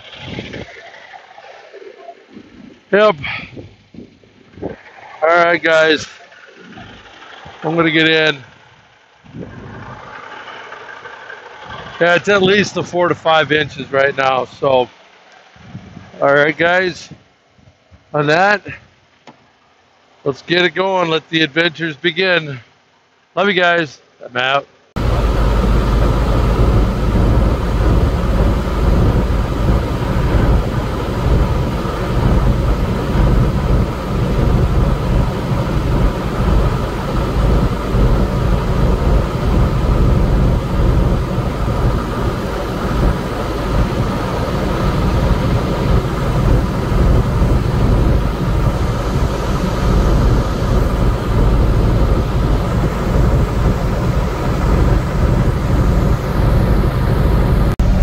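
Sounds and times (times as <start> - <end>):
diesel engine drone: 0.0 - 17.5, 24.9 - 58.0
tyre and road noise: 0.0 - 18.3, 25.0 - 58.0.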